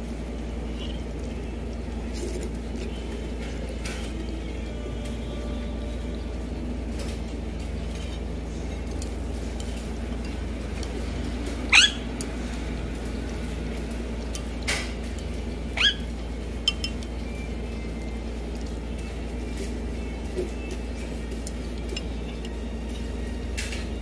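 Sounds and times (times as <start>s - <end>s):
low background hum: 0.0s - 24.0s
parakeet calls: 11.7s - 12.1s, 15.7s - 16.2s.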